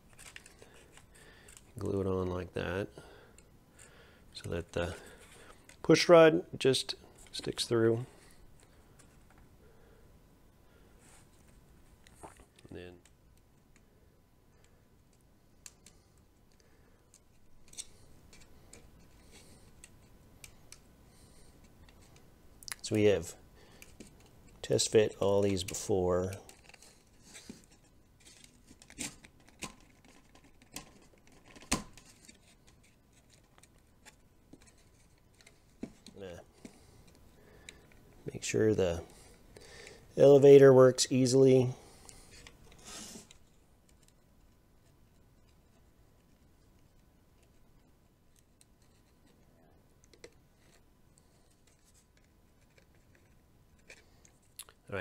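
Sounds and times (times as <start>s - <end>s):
hands handling plastic parts: 0.0s - 1.9s, 14.5s - 20.9s, 23.7s - 40.4s
plastic parts clicking and knocking: 28.2s - 38.1s.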